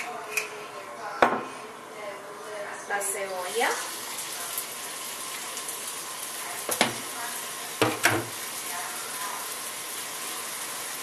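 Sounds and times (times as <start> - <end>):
onion sizzling in oil: 3.2 - 11.0
knocks on skillet: 6.7 - 7.0, 7.8 - 8.4.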